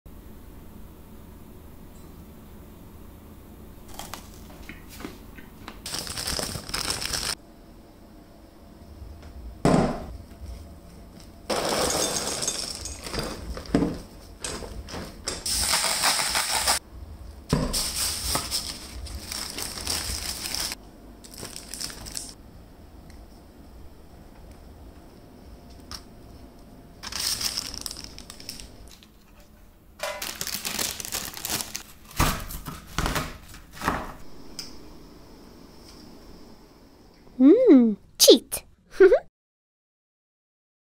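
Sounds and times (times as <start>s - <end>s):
foil wrapper crinkling: 5.8s - 7.4s, 15.5s - 16.8s, 17.8s - 22.4s, 27.0s - 29.1s, 30.0s - 32.1s.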